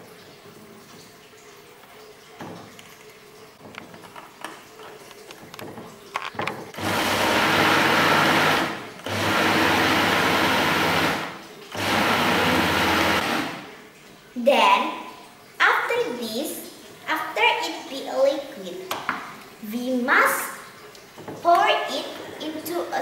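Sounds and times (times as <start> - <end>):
light clicks and knocks: 2.4 - 6.7
electric blender running: 6.7 - 13.7.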